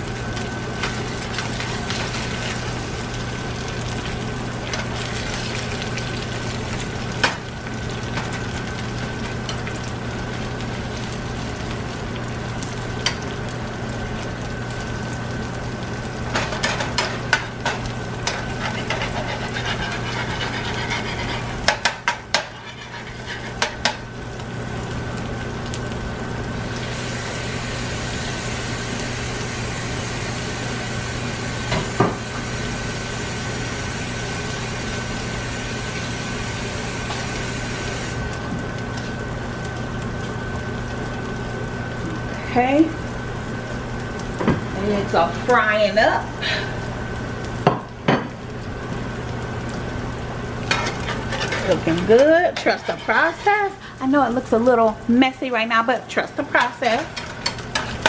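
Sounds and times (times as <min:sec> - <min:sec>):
eggs sizzling in oil: 0:00.0 - 0:58.0
spatula scraping a pan: 0:16.4 - 0:24.0, 0:50.7 - 0:54.0, 0:56.5 - 0:58.0.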